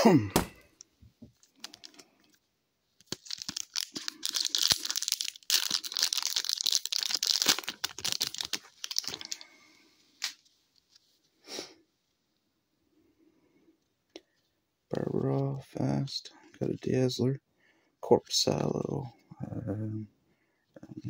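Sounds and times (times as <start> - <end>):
foil wrapper tearing and crinkling: 1.6 - 2.0, 3.0 - 9.5.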